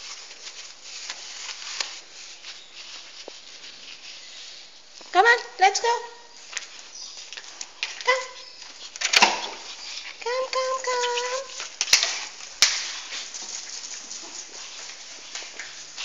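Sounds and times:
dog whining: 10.6s - 11.6s.

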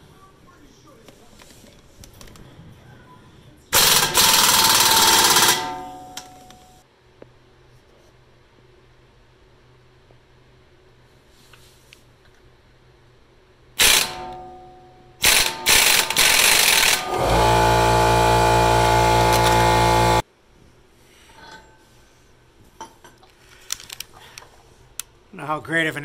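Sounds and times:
impact wrench hammering: 3.8s - 6.3s, 13.8s - 14.6s, 15.2s - 20.2s
loud ringing burst: 3.8s - 6.5s, 13.8s - 20.2s.

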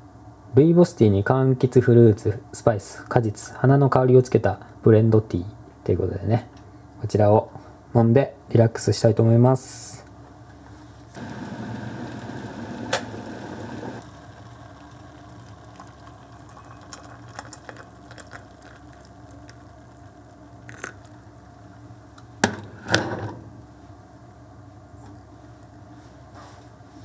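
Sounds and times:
steady hum: 10.5s - 27.0s
water pouring into mug: 11.2s - 22.2s.

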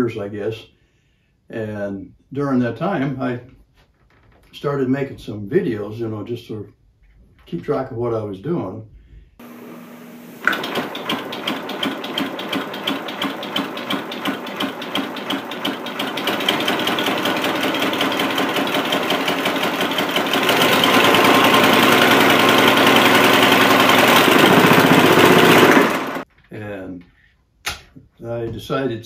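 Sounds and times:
compressed-air motor running: 9.4s - 26.2s.

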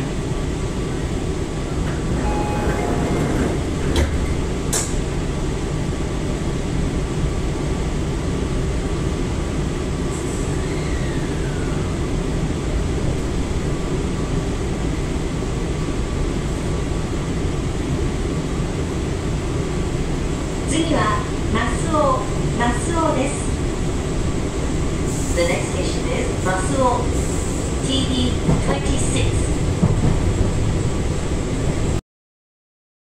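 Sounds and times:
train equipment hum: 0.0s - 32.0s
train doors closing: 1.0s - 5.3s, 24.8s - 31.9s
two-note door chime: 2.2s - 3.2s.

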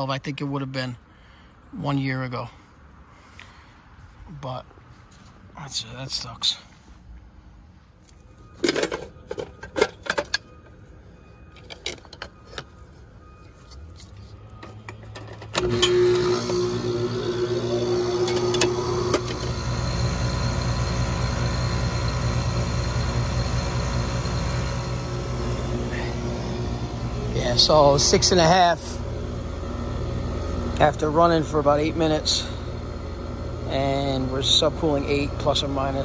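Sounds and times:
air conditioner compressor hum: 15.6s - 36.0s
condenser fan spinning: 15.6s - 36.0s.

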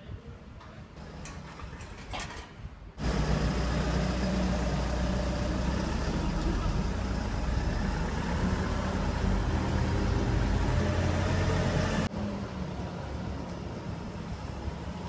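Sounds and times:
work vehicle engine idling: 3.0s - 12.1s.

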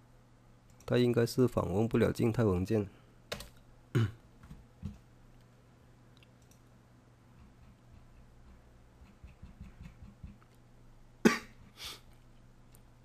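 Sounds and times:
low steady hum: 0.0s - 13.0s
keyboard and mouse clicks: 6.2s - 6.7s, 7.4s - 10.6s.

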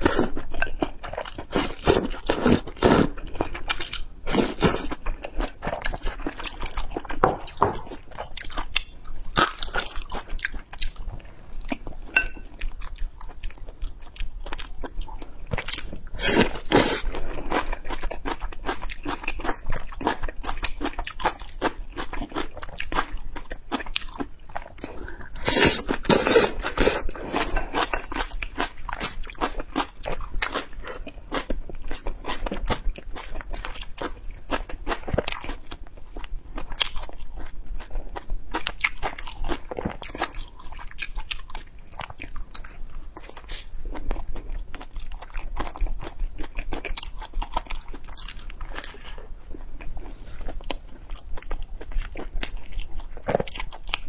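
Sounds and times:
chewing and biting flatbread: 12.7s - 54.0s.

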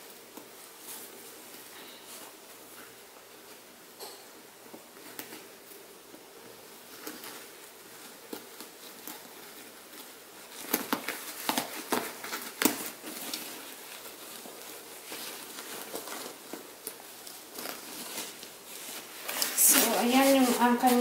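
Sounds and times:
fabric rustling: 4.7s - 21.0s.

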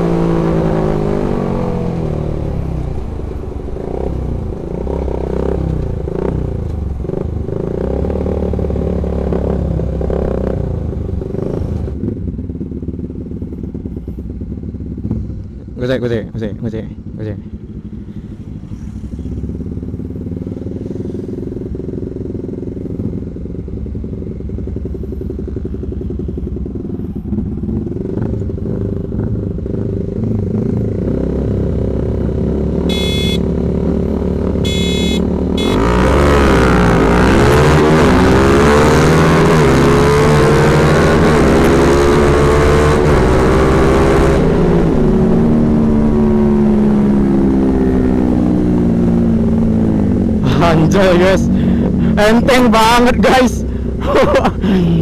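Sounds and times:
motorcycles accelerating: 0.0s - 55.0s
motorcycles idling: 11.9s - 20.4s, 21.4s - 30.9s, 49.1s - 55.0s
short high beeps: 32.9s - 33.4s, 34.6s - 36.1s.

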